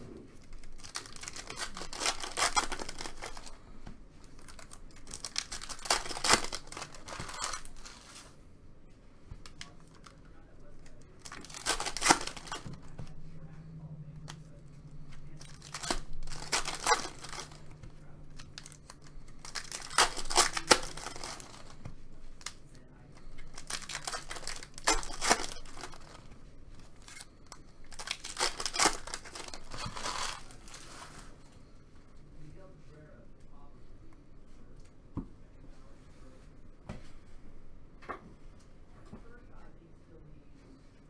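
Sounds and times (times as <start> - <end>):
wrappers tearing and crinkling: 0.4 - 3.6, 4.2 - 8.3, 10.8 - 12.9, 15.1 - 22.6, 23.2 - 31.3
cards being handled: 0.4 - 8.4, 9.3 - 13.2, 14.2 - 31.4.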